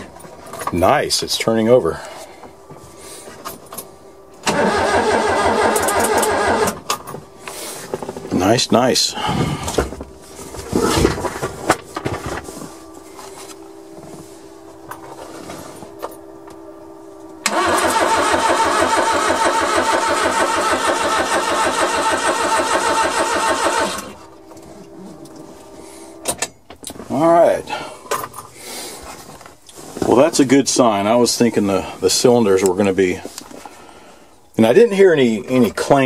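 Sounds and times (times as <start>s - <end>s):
engine cranked by starter: 4.4s - 8.4s, 17.4s - 24.4s.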